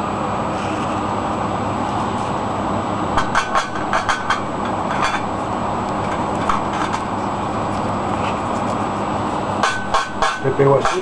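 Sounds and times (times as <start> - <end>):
steady rushing noise: 3.2 - 10.4
tool tapping circuit board: 9.6 - 11.0.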